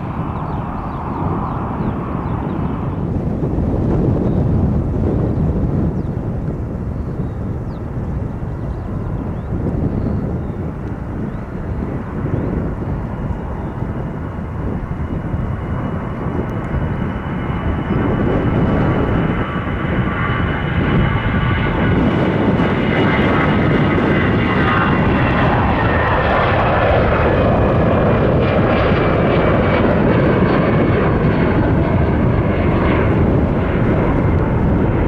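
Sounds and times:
jet airliner taking off: 0.0 - 35.0.

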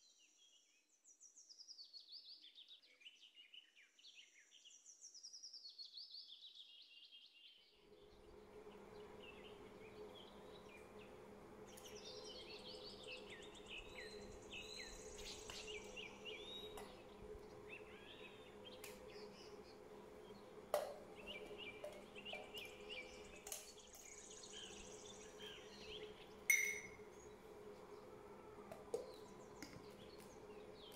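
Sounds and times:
steady low hum: 7.8 - 30.9
birds chirping: 7.9 - 30.9.

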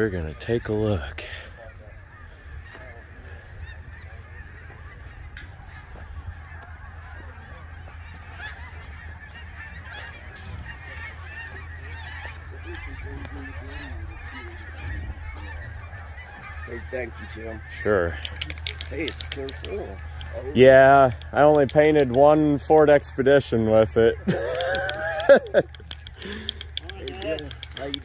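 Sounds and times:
steady low rumble: 0.0 - 21.9
flock of birds calling: 0.0 - 28.0.

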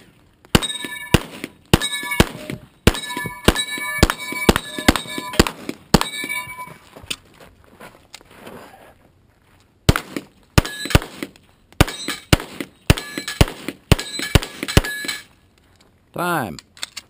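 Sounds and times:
steel plates ringing: 0.6 - 6.9, 12.9 - 15.4.

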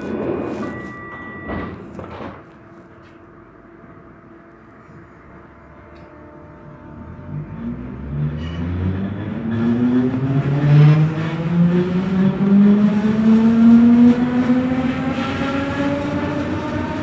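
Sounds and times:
wheel and track noise: 0.0 - 3.2, 7.1 - 17.0
electric train drive whining: 3.2 - 17.0.

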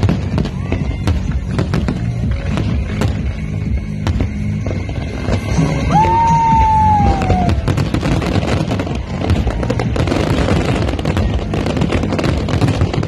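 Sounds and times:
fireworks bangs and crackles: 0.0 - 13.0
firework whistle falling in pitch: 5.7 - 8.7.

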